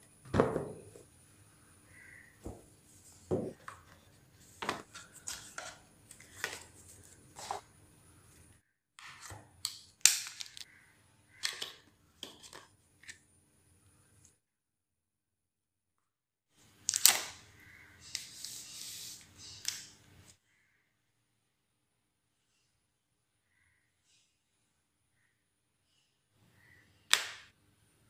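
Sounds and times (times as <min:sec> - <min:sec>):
box set down knock: 0:00.3 - 0:01.0, 0:03.3 - 0:03.6
taps clicks and paper rustles: 0:03.5 - 0:07.6, 0:09.2 - 0:10.7.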